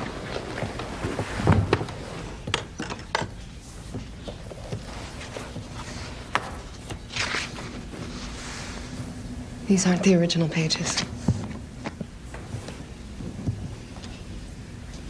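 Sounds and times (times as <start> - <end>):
paper rustling: 3.8 - 9.0.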